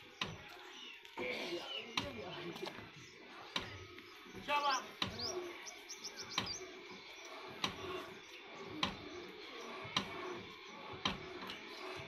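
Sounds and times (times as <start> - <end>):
birds chirping faintly: 0.0 - 12.0.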